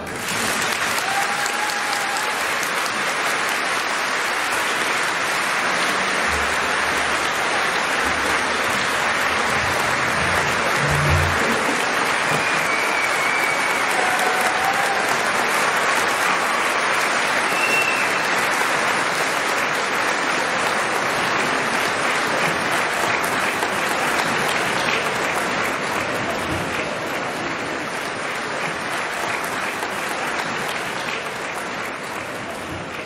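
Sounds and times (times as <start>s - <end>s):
audience applauding: 0.0s - 33.0s.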